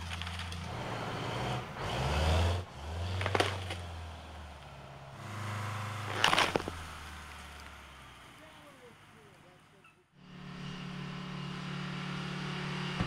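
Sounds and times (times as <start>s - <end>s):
tree stump cracking: 0.0s - 0.8s, 3.0s - 4.1s, 6.0s - 7.8s
diesel truck engine under load: 0.0s - 9.2s, 10.0s - 13.0s.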